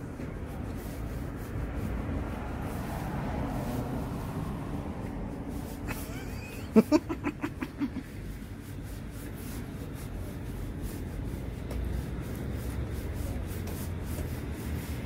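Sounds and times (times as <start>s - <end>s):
people laughing: 5.9s - 8.1s.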